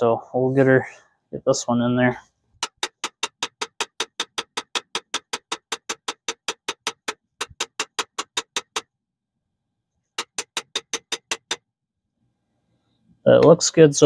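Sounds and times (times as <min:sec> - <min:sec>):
metallic clicking of hand tool: 0:02.6 - 0:08.8, 0:10.2 - 0:11.6.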